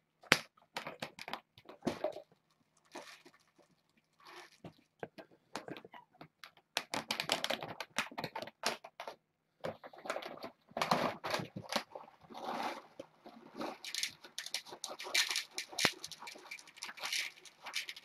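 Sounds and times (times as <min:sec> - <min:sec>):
cat kibble rattling: 0:13.6 - 0:18.0.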